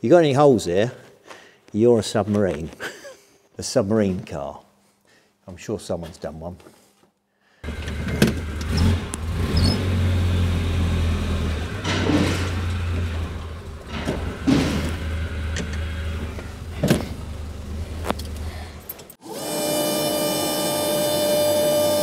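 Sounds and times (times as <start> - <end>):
car engine idling: 7.6 - 19.0.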